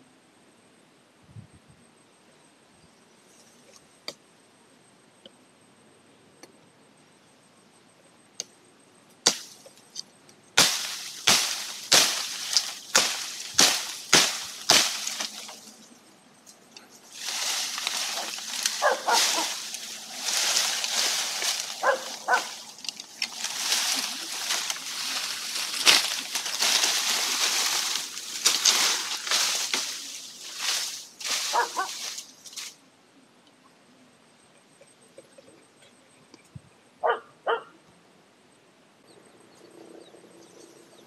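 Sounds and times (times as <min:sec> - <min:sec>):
blade chopping tree branches: 0:09.2 - 0:09.8, 0:10.6 - 0:15.8, 0:17.1 - 0:32.7
leafy branches rustling: 0:09.2 - 0:32.9.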